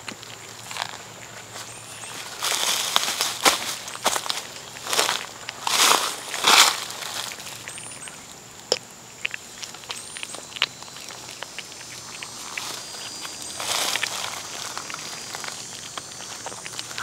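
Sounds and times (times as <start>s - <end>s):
cat chewing wet food: 0.0s - 17.0s.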